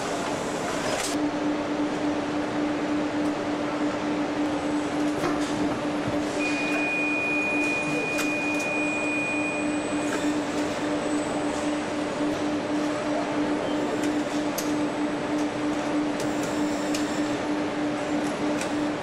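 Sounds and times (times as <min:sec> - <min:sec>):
assembly line machinery running: 0:00.0 - 0:19.0
thin high whine: 0:06.3 - 0:11.7.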